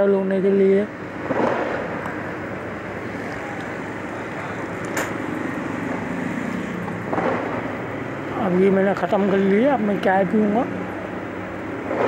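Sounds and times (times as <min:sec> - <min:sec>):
steady rushing noise: 0:00.0 - 0:12.0
sharp click: 0:04.8 - 0:05.2.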